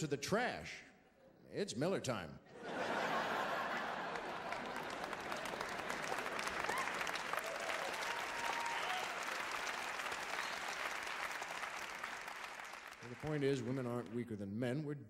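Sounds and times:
audience applauding: 0:03.2 - 0:14.2.

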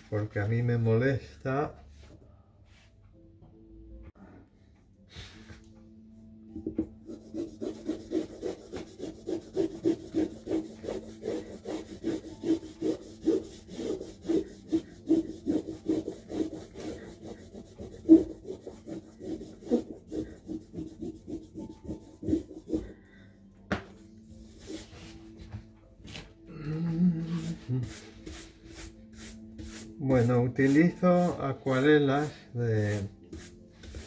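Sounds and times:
eraser rubbing on paper: 0:07.0 - 0:23.0, 0:24.5 - 0:25.2, 0:27.2 - 0:34.0.

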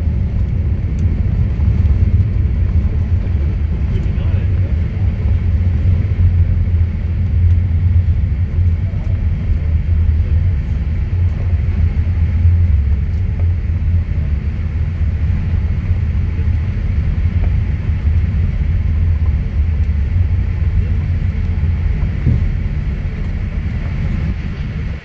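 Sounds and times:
aircraft cabin engine rumble: 0:00.0 - 0:25.0
airframe rolling: 0:17.2 - 0:25.0.

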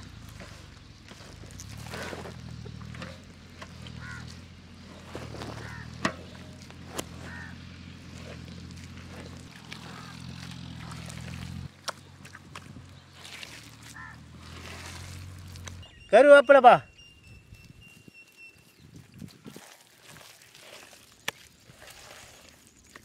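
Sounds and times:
hand squishing wet mixture: 0:00.0 - 0:15.9, 0:18.6 - 0:23.0
waterfowl honking: 0:03.8 - 0:04.4, 0:05.4 - 0:06.4, 0:07.0 - 0:07.8, 0:13.8 - 0:14.3.

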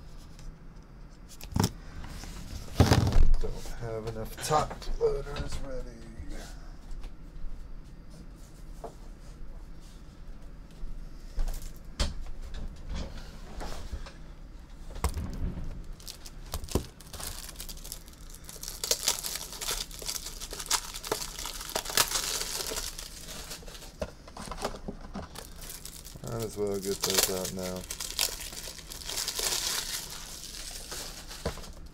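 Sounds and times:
plastic wrapping crinkling and tearing: 0:15.1 - 0:31.9.

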